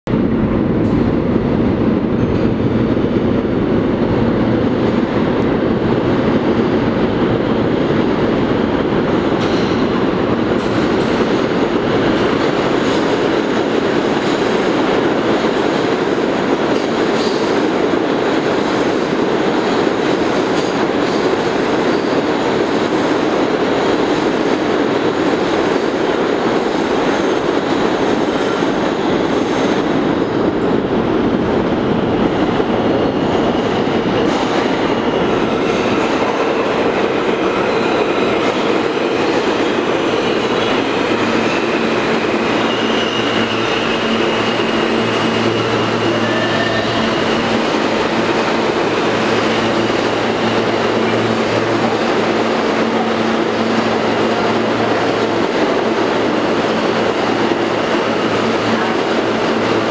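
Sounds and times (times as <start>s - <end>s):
train wheels rumbling on rail: 0.1s - 59.9s
high wheel squeal: 40.1s - 47.7s.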